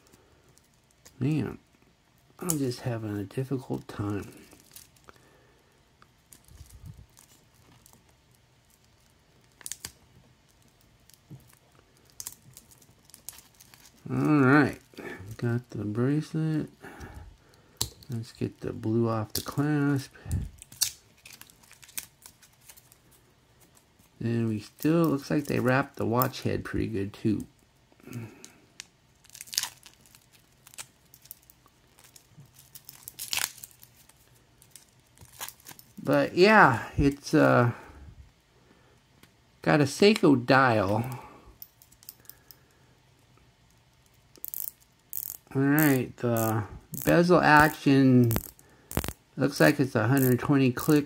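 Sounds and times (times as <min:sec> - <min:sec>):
plastic film crinkling: 0:06.3 - 0:15.7, 0:19.4 - 0:26.4, 0:28.8 - 0:36.2, 0:45.4 - 0:51.0
plastic wrap rustling: 0:19.5 - 0:25.9, 0:29.1 - 0:36.2
metal watch links clicking: 0:44.4 - 0:45.4, 0:48.2 - 0:49.1.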